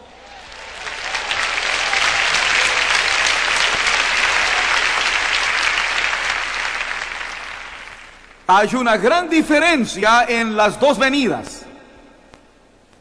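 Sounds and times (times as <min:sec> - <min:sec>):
large audience applauding: 0:00.0 - 0:08.5.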